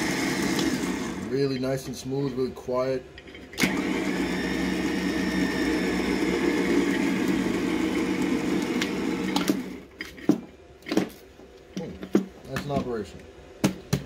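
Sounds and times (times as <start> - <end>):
electric winch motor running: 0.0 - 1.5, 3.4 - 10.0.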